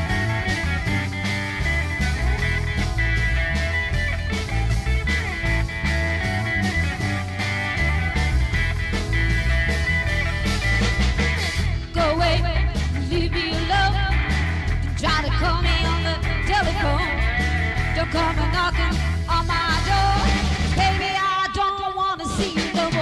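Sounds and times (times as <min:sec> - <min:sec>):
bass line: 0:00.0 - 0:21.6
guitar: 0:00.0 - 0:23.0
woman singing: 0:11.9 - 0:23.0.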